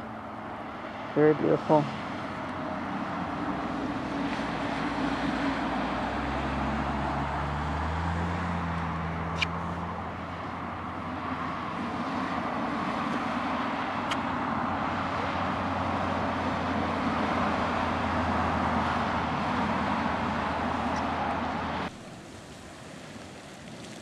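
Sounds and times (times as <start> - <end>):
vehicle engine humming: 0.0 - 24.0
steady rushing noise: 9.2 - 23.8.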